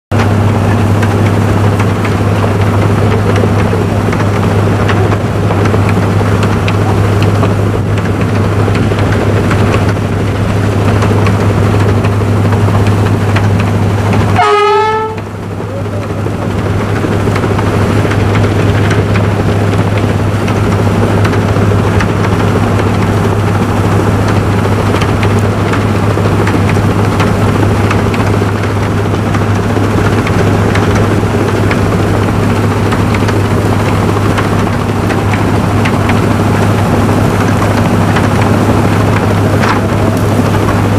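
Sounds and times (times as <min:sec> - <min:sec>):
diesel locomotive rumble: 0:00.1 - 0:40.9
short pitched toot: 0:14.4 - 0:15.3.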